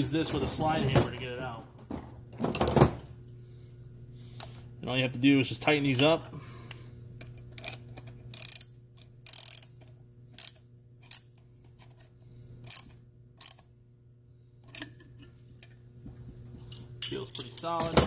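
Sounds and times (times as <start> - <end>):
ratcheting wrench clicking: 7.6 - 9.8, 10.4 - 11.4, 12.7 - 13.6.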